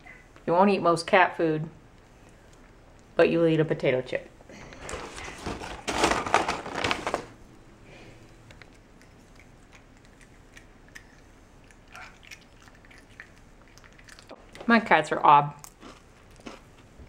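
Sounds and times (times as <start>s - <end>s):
close crinkling and rustling: 4.6s - 7.4s.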